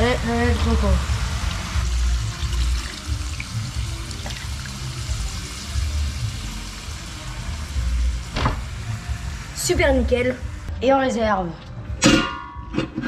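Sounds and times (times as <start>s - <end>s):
background music with regular beat: 0.0s - 13.0s
liquid pouring into hot pan: 1.4s - 5.8s.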